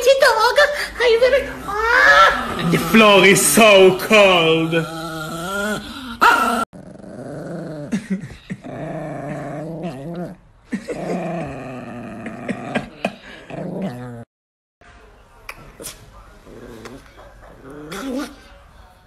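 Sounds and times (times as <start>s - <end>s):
small dog growling: 4.6s - 14.3s, 15.8s - 18.5s.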